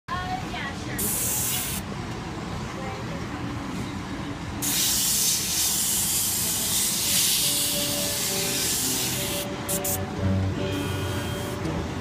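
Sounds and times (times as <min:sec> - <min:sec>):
airbrush spraying hiss: 0:01.0 - 0:01.8, 0:04.6 - 0:10.0.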